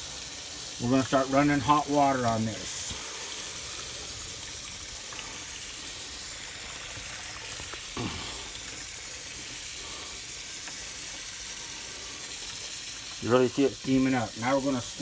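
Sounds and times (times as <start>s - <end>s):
tap water running onto metal lid: 0.0s - 15.0s.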